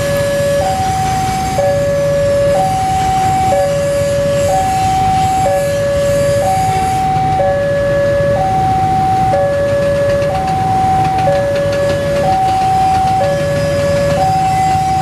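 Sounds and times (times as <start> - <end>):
locomotive rumble: 0.0 - 15.0
two-tone crossing alarm: 0.0 - 15.0.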